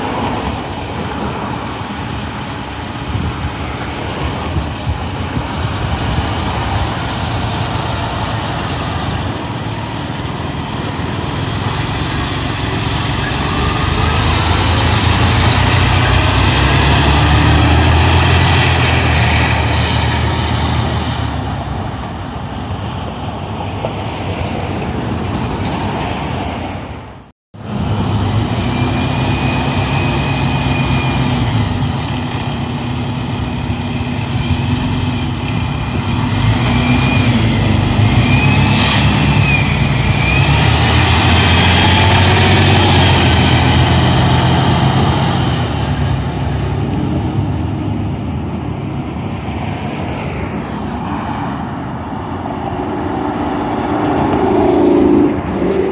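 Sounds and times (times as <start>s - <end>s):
truck diesel engine passing: 0.0s - 25.3s, 27.6s - 55.9s
air brake hiss: 38.6s - 39.2s.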